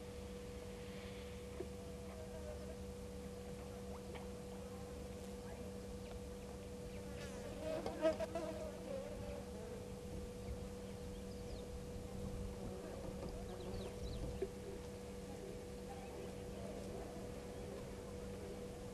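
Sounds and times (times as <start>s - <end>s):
faint steady hum: 0.0s - 18.9s
insect buzzing past: 7.1s - 9.9s.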